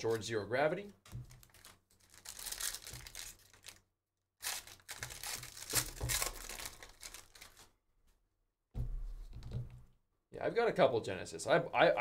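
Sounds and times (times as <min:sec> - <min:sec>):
foil wrapper tearing and crinkling: 0:01.3 - 0:03.8, 0:04.4 - 0:07.7.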